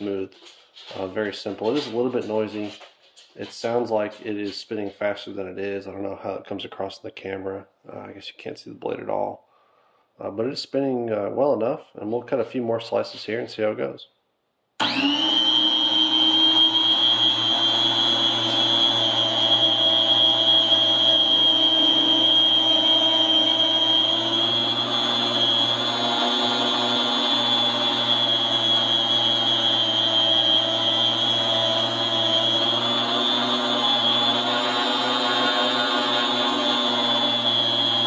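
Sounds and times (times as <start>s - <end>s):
food slicer motor whining: 14.8s - 38.0s.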